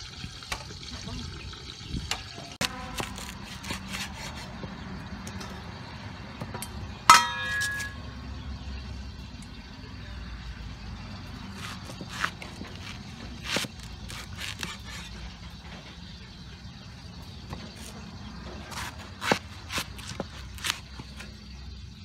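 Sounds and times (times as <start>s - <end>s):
cleaver clank with metallic ring: 6.5s - 8.1s.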